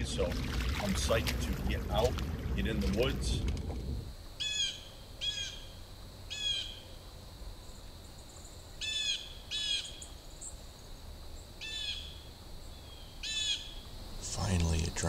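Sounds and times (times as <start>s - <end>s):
bird harsh calls: 4.4s - 6.8s, 12.8s - 13.8s.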